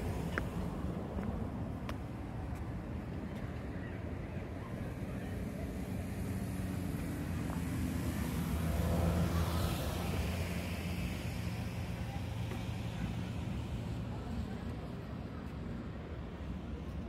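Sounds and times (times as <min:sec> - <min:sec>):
vehicle passing: 0:06.0 - 0:12.3.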